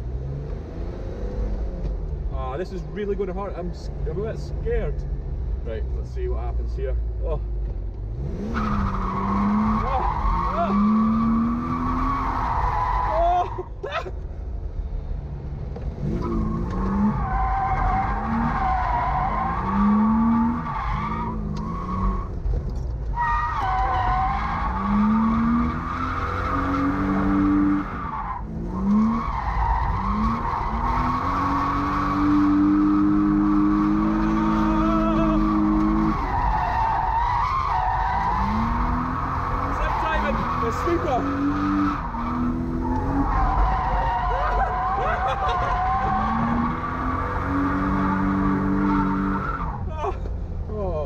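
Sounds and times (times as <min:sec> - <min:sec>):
car engine revving: 0:00.0 - 0:04.6, 0:07.9 - 0:13.2, 0:15.6 - 0:50.4
tyres squealing: 0:08.6 - 0:13.6, 0:23.2 - 0:50.3.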